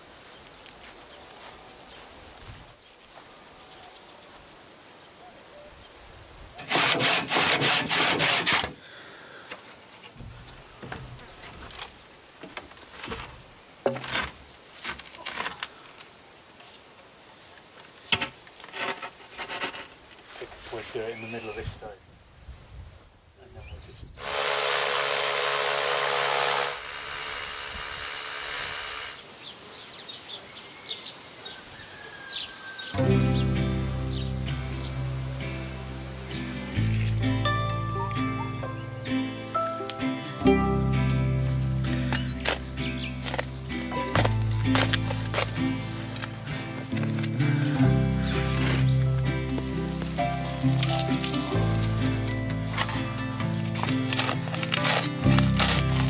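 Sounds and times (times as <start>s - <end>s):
handsaw cutting wood: 6.6s - 8.8s, 24.2s - 29.2s, 53.6s - 56.0s
power drill drilling into stone: 24.2s - 29.2s.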